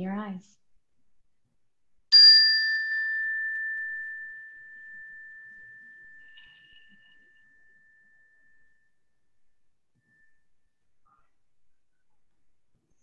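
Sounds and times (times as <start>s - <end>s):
meditation chime ringing: 2.1s - 10.8s.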